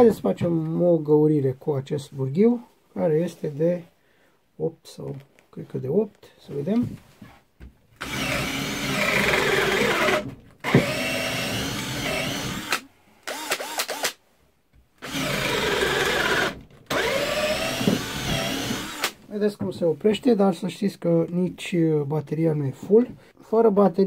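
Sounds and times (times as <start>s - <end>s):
cordless drill boring into wood: 8.0s - 14.2s, 15.0s - 19.2s.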